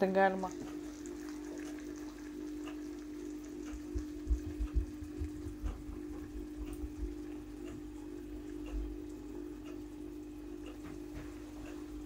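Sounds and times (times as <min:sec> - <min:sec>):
steady hum: 0:00.0 - 0:12.0
soft dull low bumps: 0:03.8 - 0:07.3.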